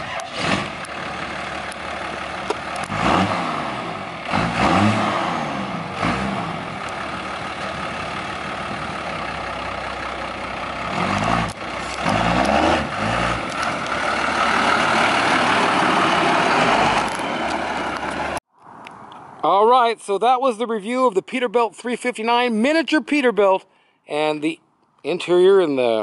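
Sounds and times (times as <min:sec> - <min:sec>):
diesel truck engine: 0:00.0 - 0:19.4.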